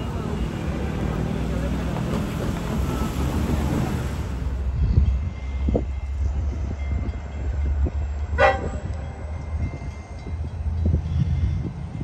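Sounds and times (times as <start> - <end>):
train rumbling: 0.0 - 12.0
train horn toot: 8.4 - 9.0.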